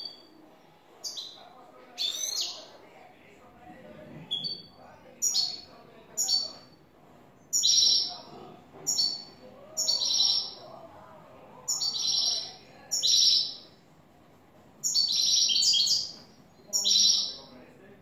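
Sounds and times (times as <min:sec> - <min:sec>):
goldfinch twittering song: 0:14.8 - 0:16.2.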